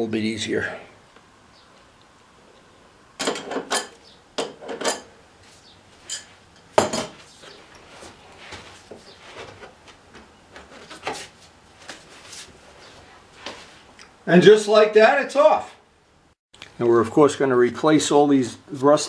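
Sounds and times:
metal clanks and clinks: 0:03.2 - 0:05.1, 0:06.0 - 0:07.1.

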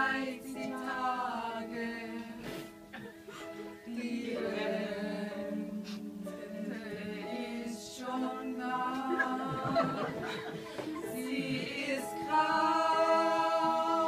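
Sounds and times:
women singing in harmony: 0:00.0 - 0:02.7, 0:03.6 - 0:14.0
higher singing voice: 0:03.9 - 0:14.0.

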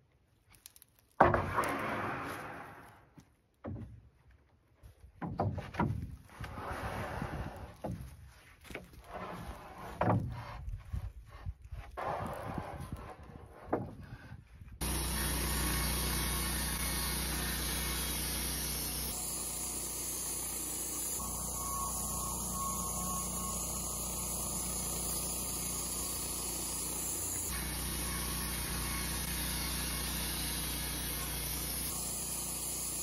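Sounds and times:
band sawmill droning: 0:14.8 - 0:33.0.

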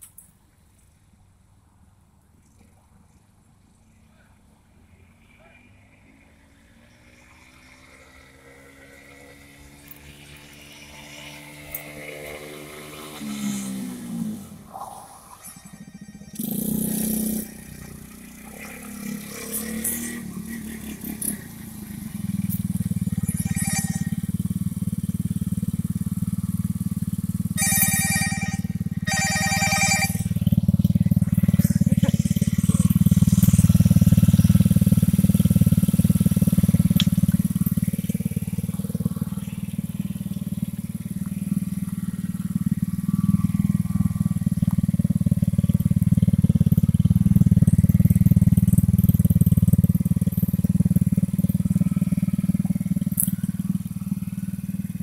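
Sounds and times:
short high ringing tones: 0:15.2 - 0:18.4, 0:22.6 - 0:24.7, 0:27.6 - 0:33.7
small engine idling: 0:15.4 - 0:55.0.

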